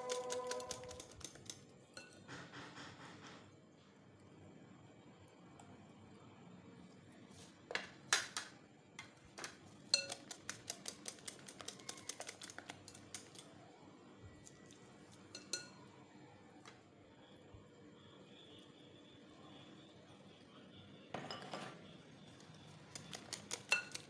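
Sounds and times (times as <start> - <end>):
whisk clinking in glass bowl: 0.0 - 2.2, 9.9 - 13.4, 15.3 - 15.8, 23.0 - 24.0.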